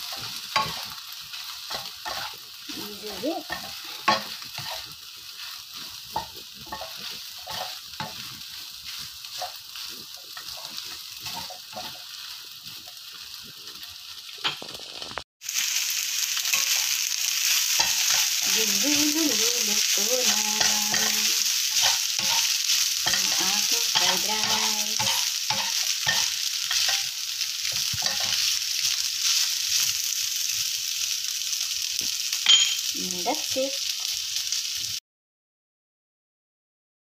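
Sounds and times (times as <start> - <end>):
spatula scraping frying pan: 0.0 - 15.1, 16.4 - 30.0
rice sizzling: 0.0 - 35.0.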